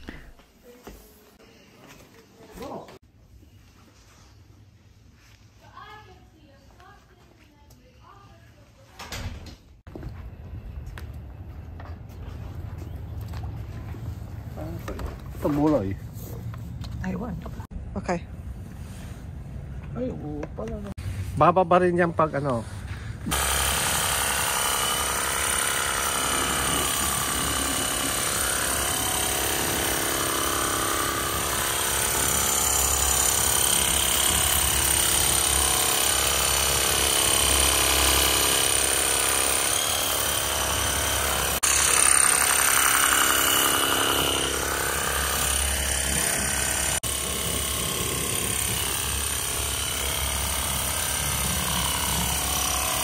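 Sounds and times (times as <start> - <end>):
pressure washer pump buzzing: 23.3 - 53.0.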